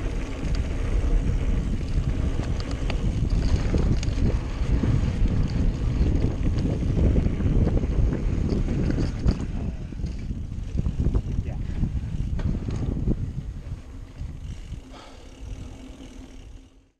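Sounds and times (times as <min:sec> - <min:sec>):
wind noise on microphone: 0:00.0 - 0:15.7
tyres rumbling on dirt: 0:00.0 - 0:16.6
bike clicks and rattles: 0:00.0 - 0:16.9.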